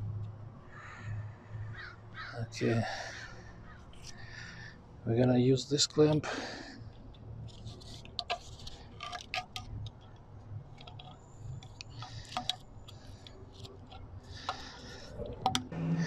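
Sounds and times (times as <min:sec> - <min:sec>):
gloved hands rustling scrapes: 0:07.4 - 0:10.1.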